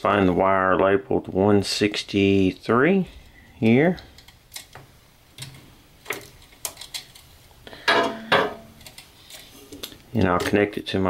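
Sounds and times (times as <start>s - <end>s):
wires clicking against sheet metal: 2.1s - 10.9s.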